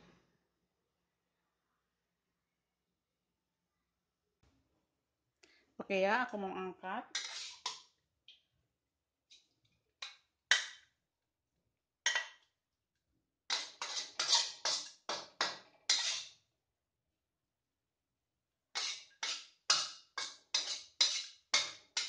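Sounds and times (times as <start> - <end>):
metal spatula scraping a wok: 7.1 - 7.8, 13.5 - 16.4, 18.7 - 22.0.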